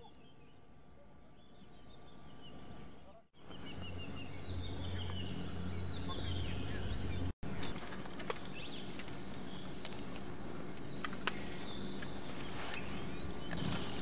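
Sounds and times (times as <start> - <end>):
low steady hum: 0.0 - 14.0
small birds chirping: 0.0 - 14.0
rope rustling in dry grass: 7.4 - 14.0.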